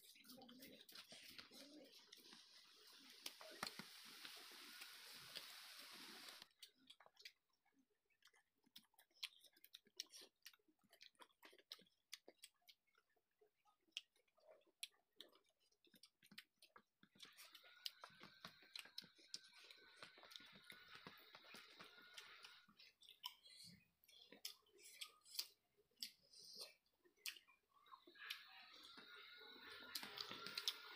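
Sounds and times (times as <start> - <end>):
chewing and lip-smacking: 0.0 - 5.5, 6.2 - 30.9
faint hiss with high whine: 3.3 - 6.4.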